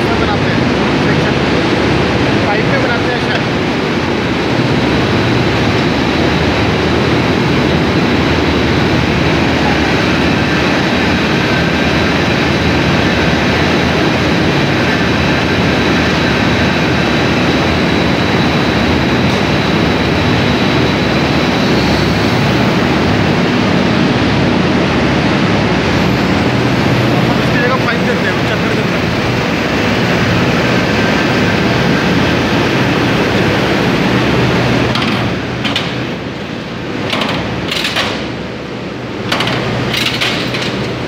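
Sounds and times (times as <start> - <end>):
machinery running: 0.0 - 41.0.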